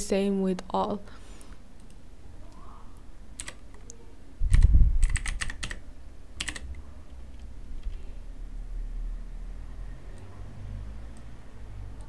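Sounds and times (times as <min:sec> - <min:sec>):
computer keyboard typing: 0:03.4 - 0:05.8, 0:06.4 - 0:08.0.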